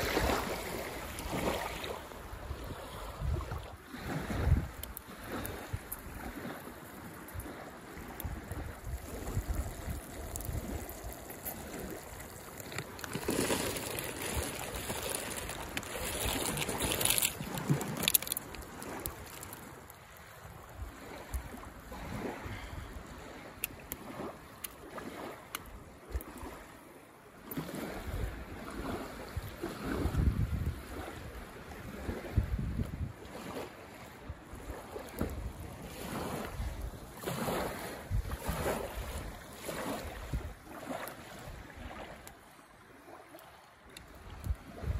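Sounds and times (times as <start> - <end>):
wind gusting on microphone: 0.0 - 19.7, 27.7 - 33.6, 34.2 - 42.2.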